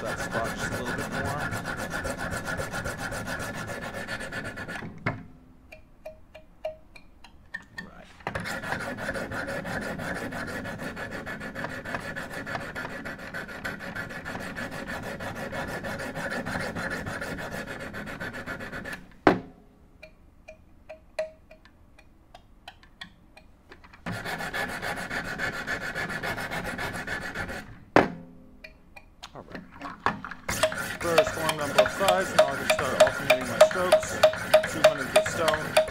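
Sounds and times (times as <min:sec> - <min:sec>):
sharpening stones scrubbing knife blade: 0:30.5 - 0:35.9.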